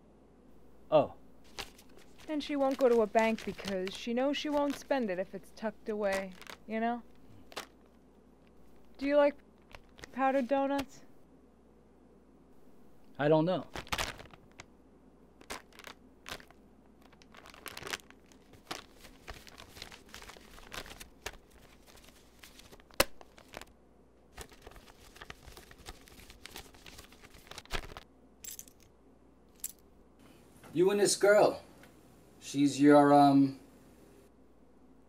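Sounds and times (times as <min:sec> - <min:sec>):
paper and plastic crinkling: 0:01.4 - 0:11.0, 0:13.6 - 0:14.7, 0:15.4 - 0:23.7, 0:24.3 - 0:28.0.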